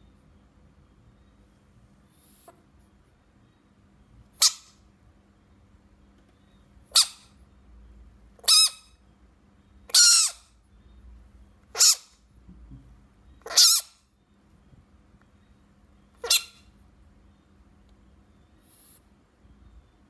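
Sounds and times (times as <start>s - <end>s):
frog squawking calls: 9.9s - 10.6s, 11.7s - 12.2s, 13.4s - 14.1s, 16.2s - 16.7s.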